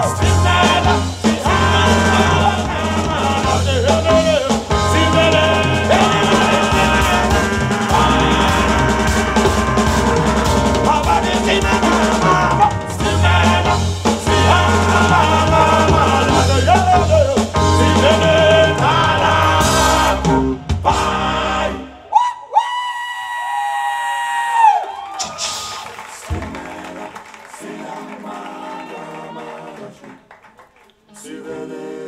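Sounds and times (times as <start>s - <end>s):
bass line: 0.0s - 22.0s
drums: 0.0s - 22.0s, 25.1s - 27.2s
person singing: 0.0s - 22.0s.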